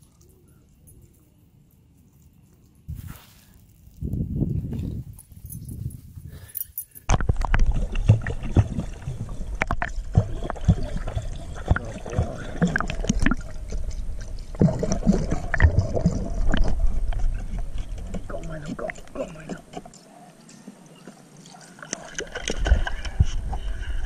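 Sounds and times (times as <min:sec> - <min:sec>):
pool water sloshing and gurgling: 0:07.2 - 0:20.0, 0:20.6 - 0:24.0.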